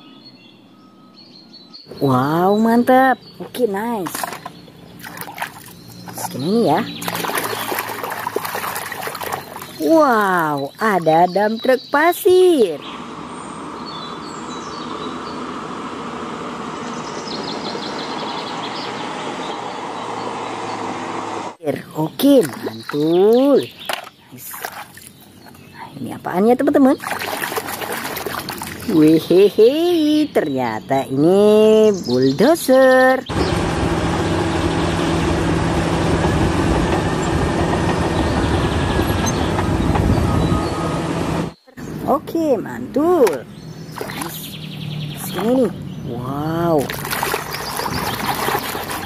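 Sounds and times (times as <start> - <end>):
truck engine running: 33.3 - 42.0.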